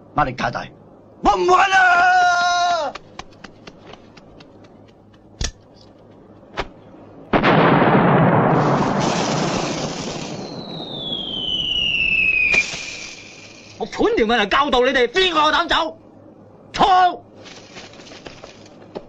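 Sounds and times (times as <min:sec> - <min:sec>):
fuse crackling: 0:02.9 - 0:14.8, 0:17.3 - 0:19.0
firework rushing hiss: 0:07.9 - 0:14.0
sharp pops: 0:09.0 - 0:13.8
falling whistle: 0:10.1 - 0:13.8.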